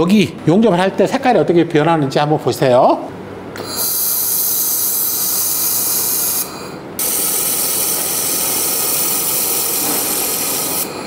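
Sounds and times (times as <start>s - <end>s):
laser welder hissing: 3.8s - 11.0s.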